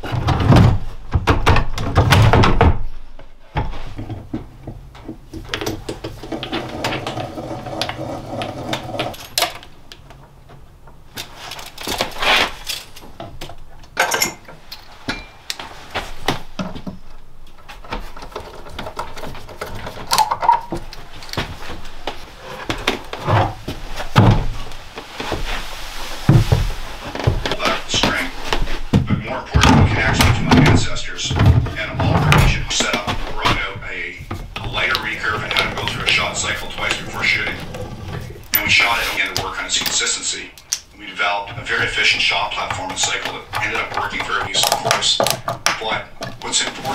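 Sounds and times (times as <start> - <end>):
wooden knocks and clatter: 0.0 - 11.1, 16.0 - 25.6, 26.2 - 38.6, 41.6 - 46.9.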